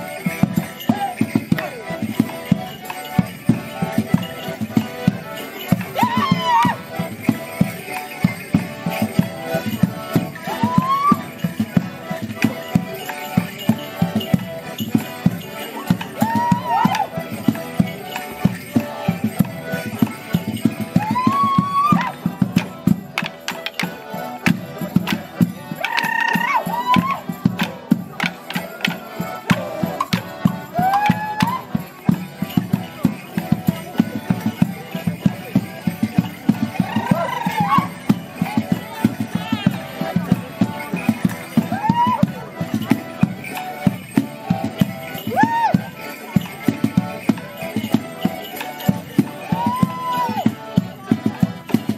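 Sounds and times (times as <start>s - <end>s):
melodeon band playing: 0.0s - 51.9s
dancers shouting: 6.0s - 6.8s.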